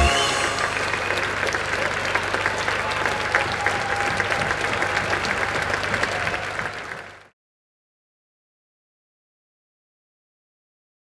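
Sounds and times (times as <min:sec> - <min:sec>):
audience applauding: 0:00.0 - 0:07.3.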